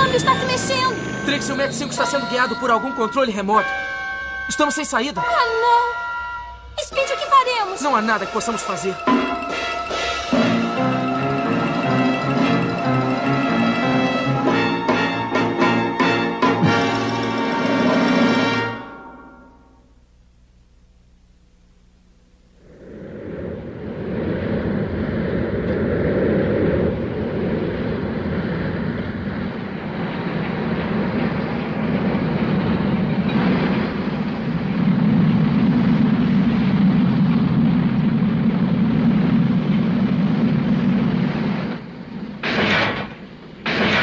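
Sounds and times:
heavy factory machinery: 27.1 - 44.0.

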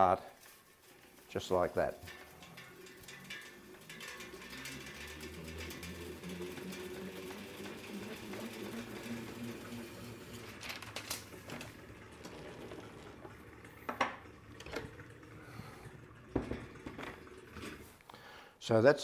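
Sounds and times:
film rewinder whirring: 0.5 - 18.0
clicks and knocks of reel: 1.8 - 15.0.

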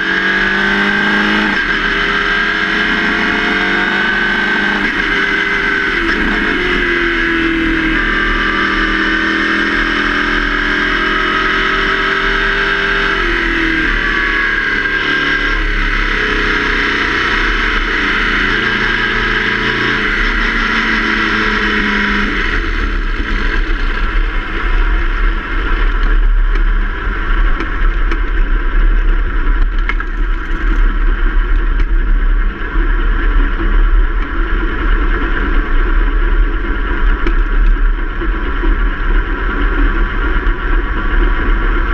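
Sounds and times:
race car engine running: 0.0 - 41.9
wind rumble on microphone: 15.5 - 41.9.

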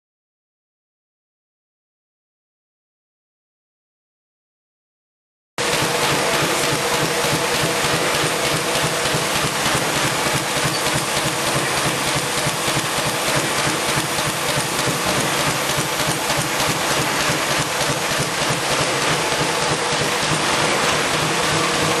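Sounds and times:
machine clattering: 5.6 - 22.0
machine hum: 5.6 - 22.0.

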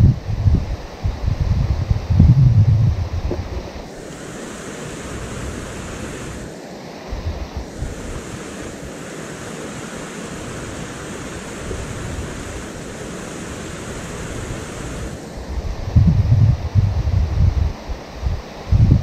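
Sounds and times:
wind buffeting microphone: 0.0 - 6.5, 7.1 - 9.0, 9.8 - 19.0
river rapids rushing: 3.3 - 15.6.

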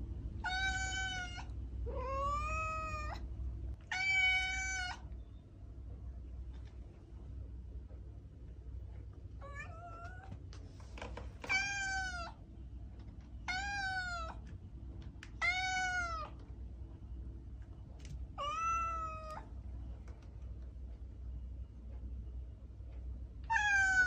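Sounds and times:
cat meowing: 0.4 - 3.2, 3.8 - 5.1, 9.4 - 10.3, 11.4 - 12.4, 13.4 - 14.4, 15.4 - 16.4, 18.4 - 19.5, 23.5 - 24.0.

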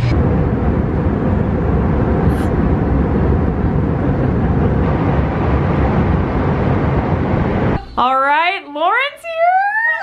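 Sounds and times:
airliner cabin rumble: 0.0 - 7.8.

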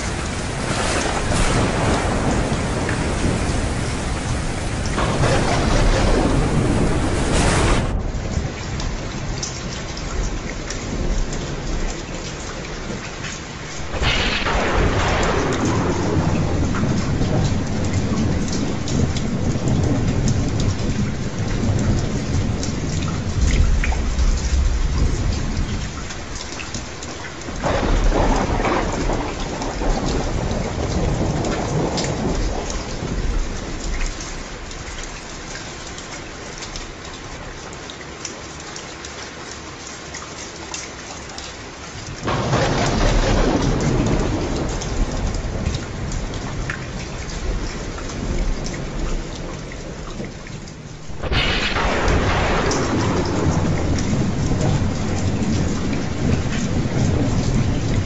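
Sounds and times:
thunder rolling: 0.0 - 9.4, 13.7 - 33.8, 42.2 - 58.0
steady rain: 0.0 - 58.0.

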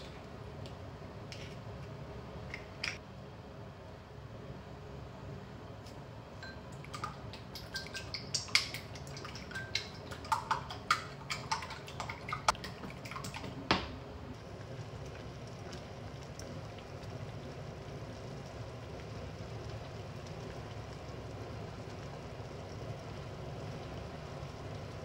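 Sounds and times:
low steady hiss: 13.9 - 25.0.

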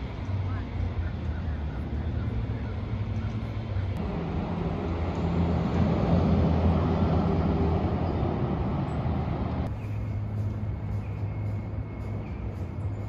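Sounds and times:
heavy vehicle engine hum passing: 0.0 - 13.0
street traffic: 0.0 - 13.0.

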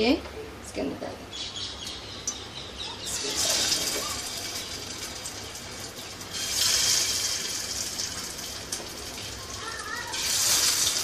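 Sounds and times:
patties sizzling in oil: 3.0 - 11.0.

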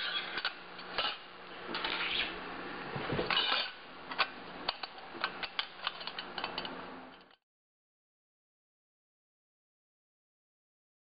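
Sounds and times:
metal part scraping: 0.0 - 2.3, 3.2 - 7.4.

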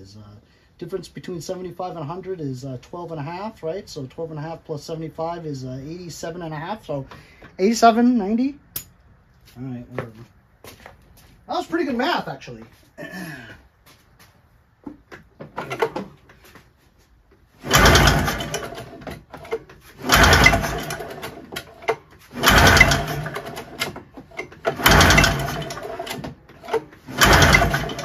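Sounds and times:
engine cranked by pull-start rope: 17.6 - 28.0.

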